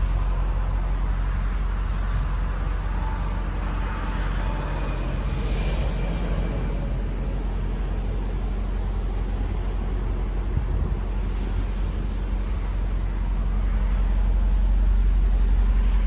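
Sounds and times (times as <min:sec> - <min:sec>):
car engine idling: 0:06.6 - 0:16.0.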